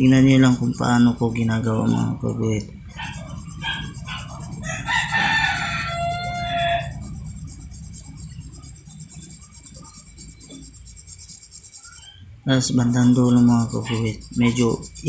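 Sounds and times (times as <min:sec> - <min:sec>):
low background rumble: 0:00.0 - 0:15.0
rooster crowing: 0:02.8 - 0:09.9.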